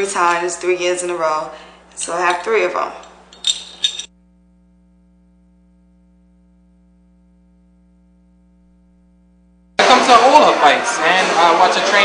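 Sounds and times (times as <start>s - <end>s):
voice: 0.0s - 3.0s, 9.8s - 12.0s
faint electrical hum: 0.0s - 9.8s.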